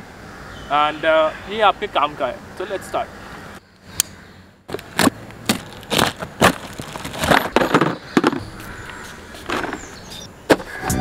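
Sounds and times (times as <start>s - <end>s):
cardboard flaps crackling: 4.7s - 8.8s.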